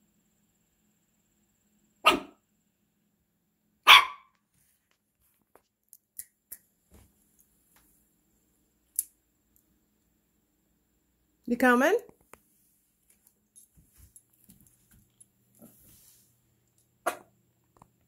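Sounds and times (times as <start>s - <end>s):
puppy barking: 2.0s - 2.4s, 3.8s - 4.4s.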